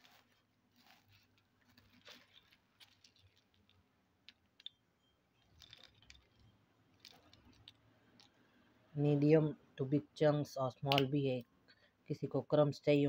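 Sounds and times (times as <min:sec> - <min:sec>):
clay chunks clicking together: 0:00.8 - 0:04.8, 0:05.4 - 0:08.4.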